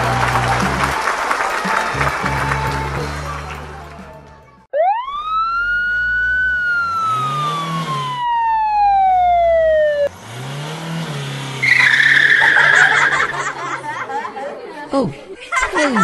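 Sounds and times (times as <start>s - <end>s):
falling whistling tone: 5.1s - 10.1s, 11.6s - 13.3s
low motor revving: 5.2s - 13.9s
loud screech: 11.6s - 13.3s.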